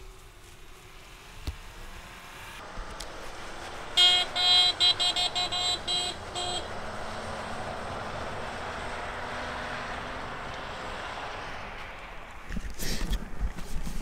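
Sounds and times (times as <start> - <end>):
van horn honking: 3.8 - 7.2.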